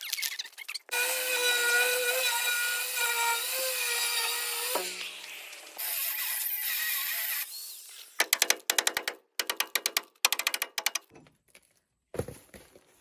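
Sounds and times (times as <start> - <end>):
angle grinder cutting steel: 0.9 - 8.2.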